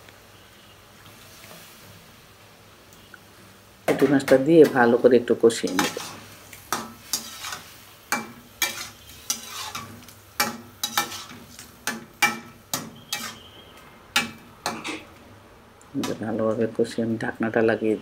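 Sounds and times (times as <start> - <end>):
faint frying sizzle: 0.0 - 18.0
metal spatula scraping a wok: 5.6 - 15.2.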